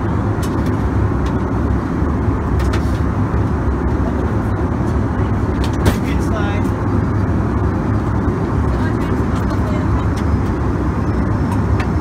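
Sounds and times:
airplane cabin rumble: 0:00.0 - 0:12.0.

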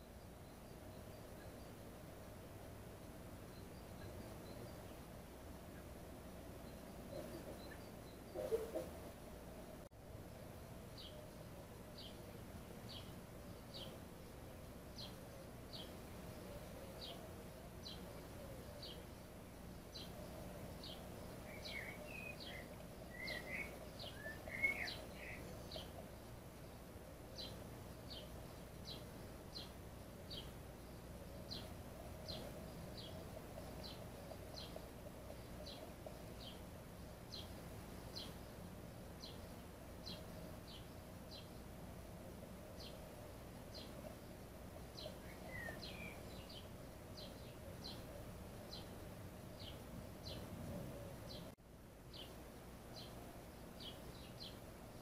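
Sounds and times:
bird twittering: 0:20.8 - 0:26.0, 0:45.0 - 0:48.1.

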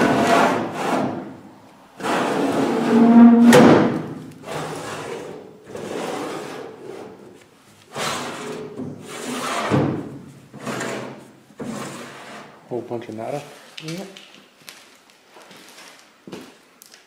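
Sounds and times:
metal drawers sliding open and shut: 0:02.0 - 0:06.6
drawer squeal: 0:02.3 - 0:04.0.

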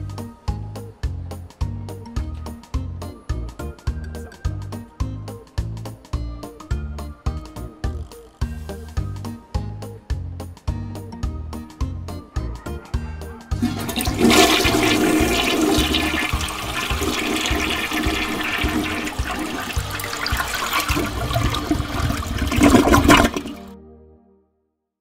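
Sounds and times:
music with steady low beat: 0:00.0 - 0:23.6.

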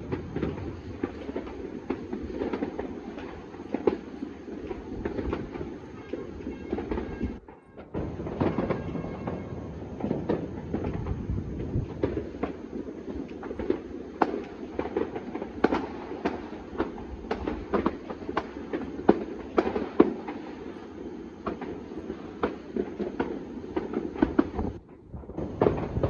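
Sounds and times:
distant fireworks crackling: 0:00.0 - 0:26.0
loud firework bang: 0:04.6 - 0:12.5, 0:22.4 - 0:26.0.

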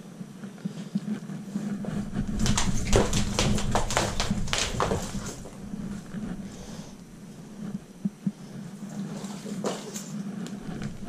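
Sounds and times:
cable rustling and slapping: 0:01.0 - 0:06.6, 0:07.6 - 0:11.0.

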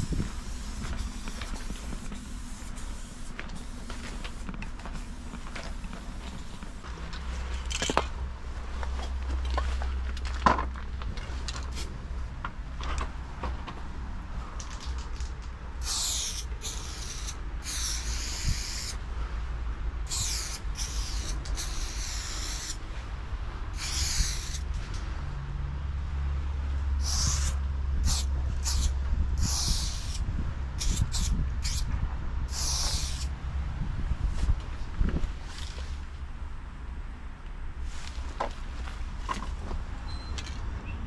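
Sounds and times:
spray paint can hissing: 0:00.0 - 0:06.8, 0:15.8 - 0:19.0, 0:20.0 - 0:22.8, 0:23.7 - 0:24.7, 0:27.0 - 0:30.2, 0:30.8 - 0:31.9, 0:32.5 - 0:33.3
low steady rumble: 0:00.0 - 0:41.0.

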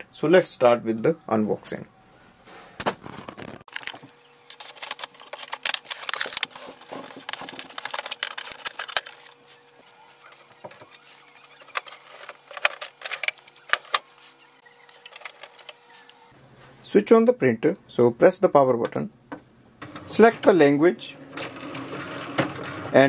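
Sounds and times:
packing tape pulled off: 0:02.8 - 0:09.4.

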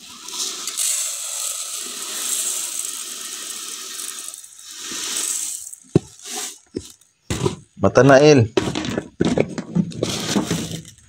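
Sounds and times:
rice pouring into metal pot: 0:00.0 - 0:07.6.

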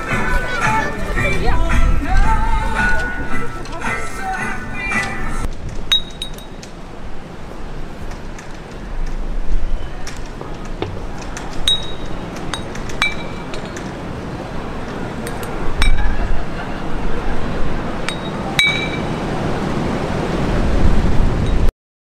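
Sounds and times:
steady low rumble: 0:00.0 - 0:04.2
glass bottles clinking: 0:05.9 - 0:06.7, 0:11.6 - 0:14.0, 0:14.9 - 0:16.3, 0:18.0 - 0:19.3.

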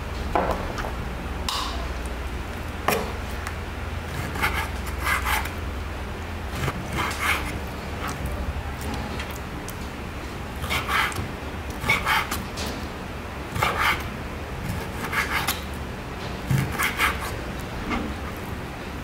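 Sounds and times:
steady low hum: 0:00.0 - 0:19.0
knife cutting meat on wooden board: 0:06.6 - 0:08.2, 0:10.6 - 0:12.5, 0:13.6 - 0:15.6, 0:16.5 - 0:18.4.

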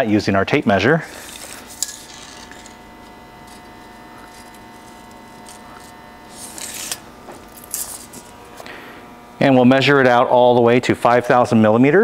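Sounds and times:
low hum: 0:00.8 - 0:11.5
tape measure scraping on concrete: 0:01.0 - 0:02.8, 0:03.4 - 0:08.3.

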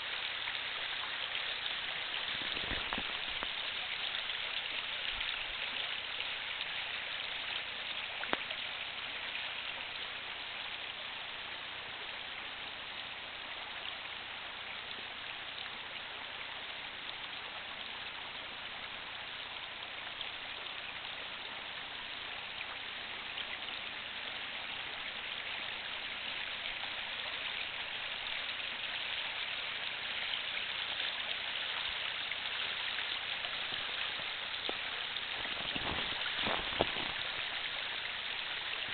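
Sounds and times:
creek rushing water: 0:00.0 - 0:38.9.

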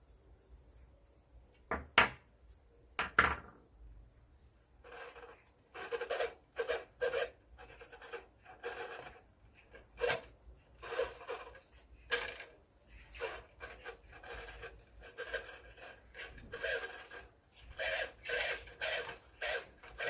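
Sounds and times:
gloved fingers scraping clock hands: 0:04.6 - 0:20.0.

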